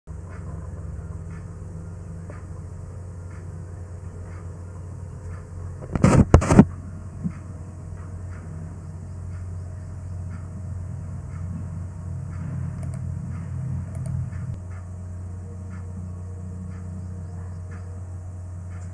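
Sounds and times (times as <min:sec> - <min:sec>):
steady low hum: 0:00.1 - 0:18.9
faint ticks: 0:09.1 - 0:10.5.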